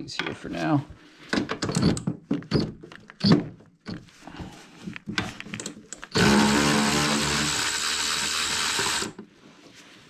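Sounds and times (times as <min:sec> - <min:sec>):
power ratchet motor whine: 0:06.2 - 0:09.2.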